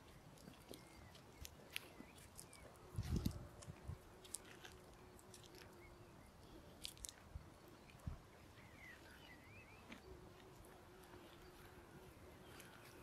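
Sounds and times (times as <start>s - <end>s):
bird chirping: 0.0s - 3.3s, 4.1s - 13.0s
footsteps crunching on grit: 0.0s - 5.6s.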